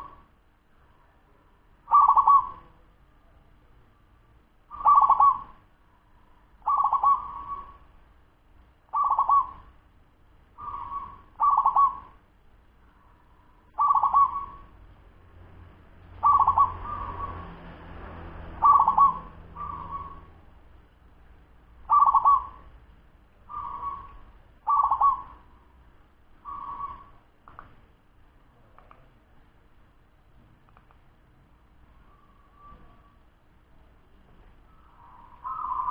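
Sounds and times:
dove cooing: 1.9 - 2.8, 4.7 - 5.6, 6.6 - 7.9, 8.9 - 9.7, 10.6 - 12.2, 13.7 - 14.8, 16.2 - 17.4, 18.5 - 20.3, 21.8 - 22.7, 23.5 - 25.7, 26.4 - 27.2, 34.7 - 35.9.

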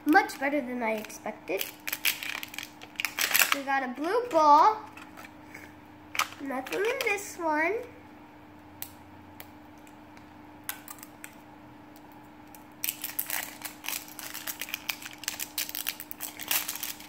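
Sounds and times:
plastic clicking and crackling: 1.0 - 5.3, 6.1 - 7.1.

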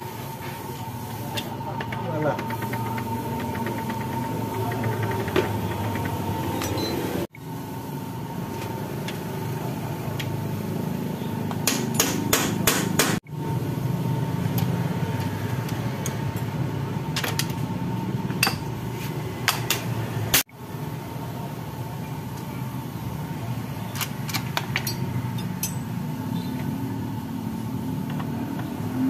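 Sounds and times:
workshop hum: 0.0 - 29.0
metal tools tapping and clinking: 4.7 - 6.9, 24.0 - 26.0.

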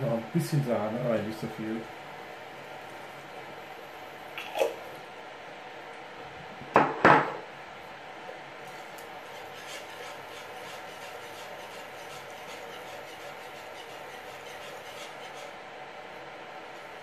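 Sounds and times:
whisk stirring sauce in a pan: 8.6 - 17.0.

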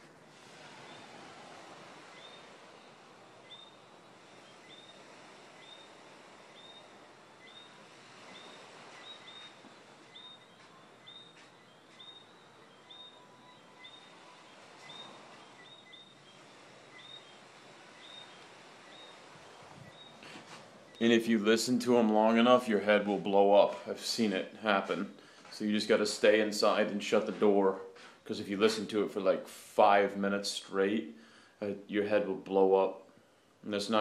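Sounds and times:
soft night hiss: 0.0 - 34.0
insects chirping high: 0.8 - 21.2.

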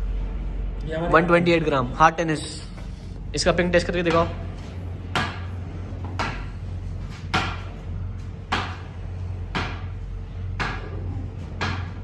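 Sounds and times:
ball knocking on wooden bat: 4.0 - 4.4, 5.1 - 7.8, 8.4 - 12.0.

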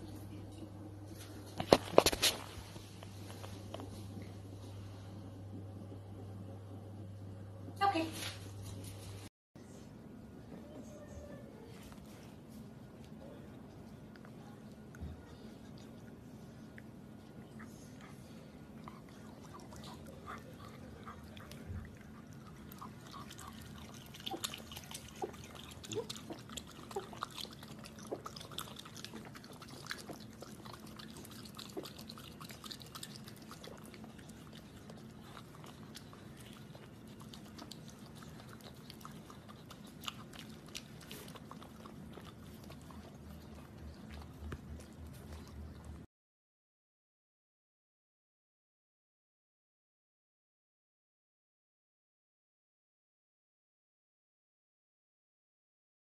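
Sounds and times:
steady low hum: 0.0 - 46.1
raccoon chewing and lip smacking: 11.3 - 46.1.

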